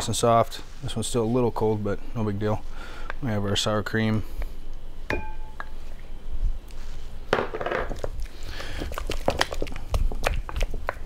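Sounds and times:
ringing clink: 5.1s - 5.6s.

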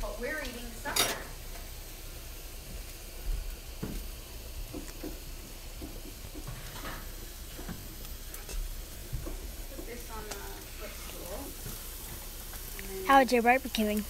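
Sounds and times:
meat sizzling on a grill: 0.0s - 14.0s
brush and tongs tapping: 4.7s - 12.9s.

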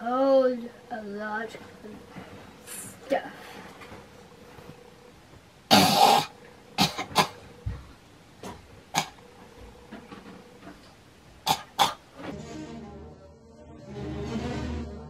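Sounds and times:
girl coughing: 5.7s - 7.4s.

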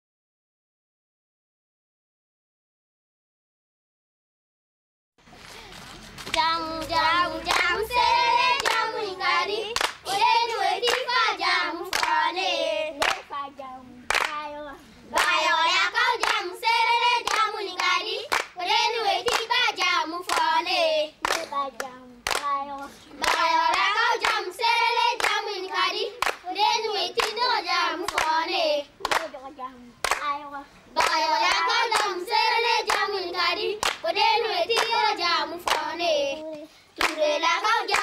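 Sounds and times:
girls singing together: 6.3s - 38.0s
hand claps: 8.5s - 9.0s, 9.7s - 11.2s, 11.9s - 12.2s, 13.0s - 13.4s, 14.1s - 14.4s, 15.2s - 15.4s, 16.2s - 16.5s, 17.2s - 18.6s, 19.2s - 19.6s, 20.2s - 20.6s, 21.2s - 24.5s, 25.2s - 26.4s, 27.2s - 28.4s, 29.0s - 29.4s, 30.0s - 30.3s, 31.0s - 32.2s, 33.8s - 34.1s, 34.7s - 37.2s.

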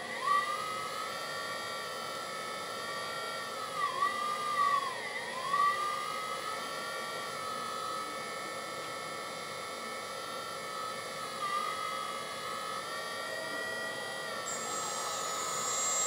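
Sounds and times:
hydraulic pump electric whine: 10.0s - 16.0s.

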